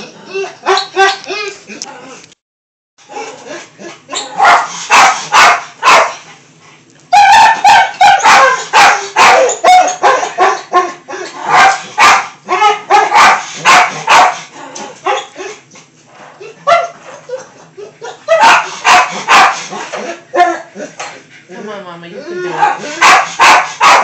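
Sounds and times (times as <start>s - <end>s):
dog yipping and barking: 0.6s - 1.6s, 4.1s - 6.2s, 7.1s - 14.4s, 15.0s - 15.6s, 16.6s - 20.7s, 22.5s - 24.0s.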